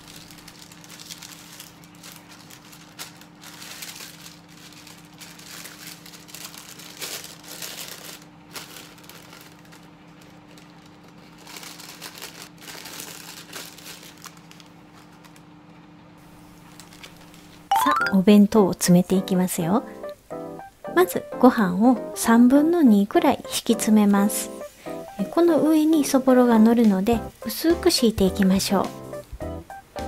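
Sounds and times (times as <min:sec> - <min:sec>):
paper crinkling and rustling: 0:00.0 - 0:17.6.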